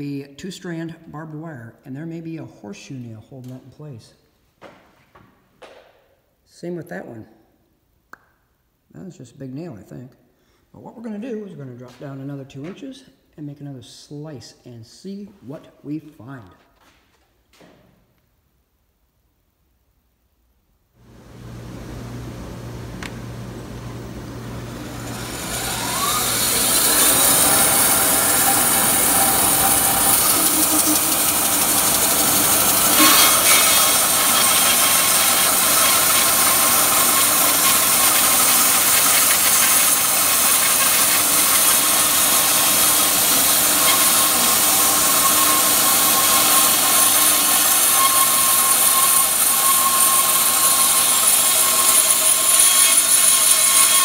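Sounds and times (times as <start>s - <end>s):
band sawmill sawing log: 22.8s - 54.0s.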